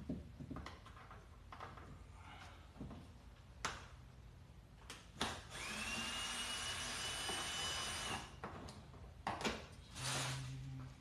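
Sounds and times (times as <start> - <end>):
cordless drill whining: 5.5 - 8.3.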